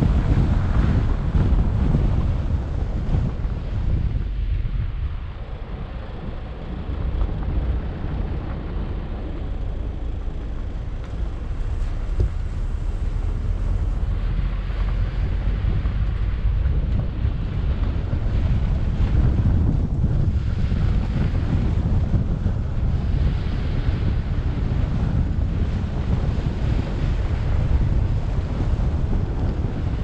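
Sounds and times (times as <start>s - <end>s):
car road noise: 0.0s - 30.0s
wind rushing over microphone: 0.0s - 30.0s.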